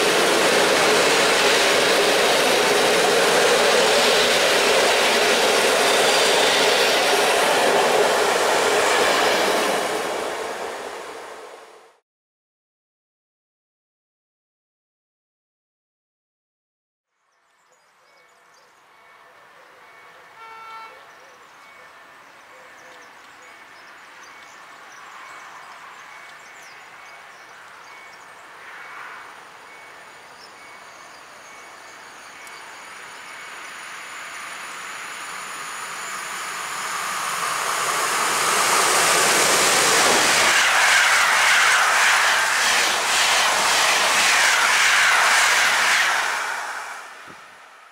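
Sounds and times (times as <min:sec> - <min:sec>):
electric train passing: 0:00.0 - 0:12.0, 0:18.4 - 0:47.9.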